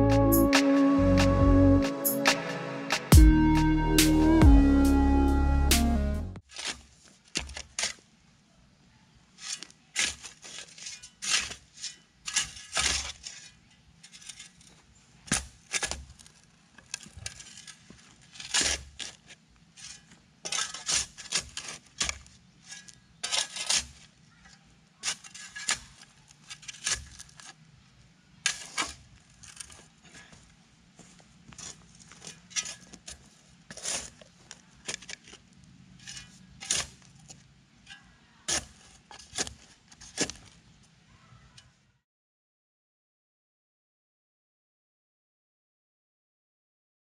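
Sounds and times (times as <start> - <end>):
stone and metal scrapes and clinks: 9.4 - 14.8, 15.7 - 19.2, 19.8 - 24.1, 25.0 - 27.6, 31.6 - 40.4.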